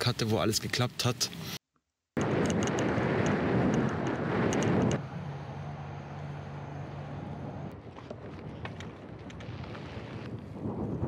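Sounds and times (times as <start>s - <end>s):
low drone: 2.2s - 7.9s
vehicle rushing past: 3.4s - 7.8s.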